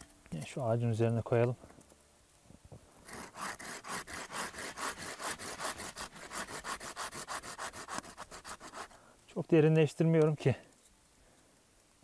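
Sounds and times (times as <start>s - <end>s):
hand saw cutting wood: 3.0s - 9.0s.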